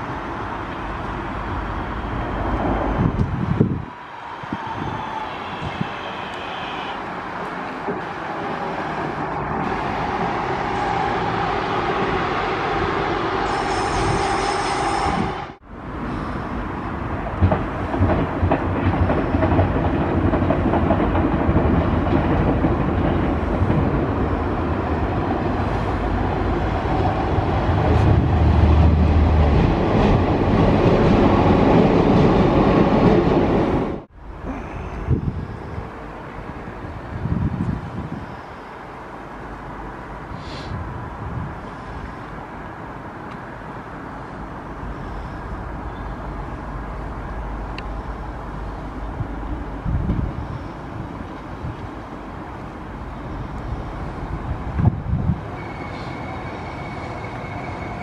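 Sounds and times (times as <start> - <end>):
train rolling past: 0.0 - 58.0
train whine: 0.0 - 58.0
train wheel clatter: 17.2 - 24.5.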